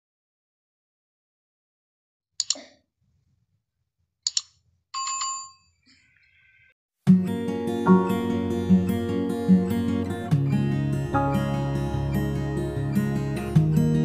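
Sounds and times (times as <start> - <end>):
sharp clicks: 2.4 - 2.7, 4.3 - 4.6
strummed acoustic guitar music: 7.1 - 14.0.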